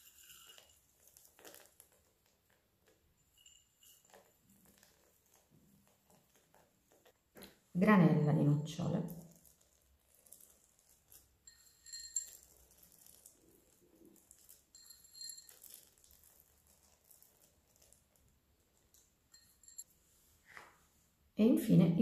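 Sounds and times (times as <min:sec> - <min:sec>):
glass bowl clinks: 0:11.5 - 0:13.2, 0:14.4 - 0:16.0, 0:19.3 - 0:19.9.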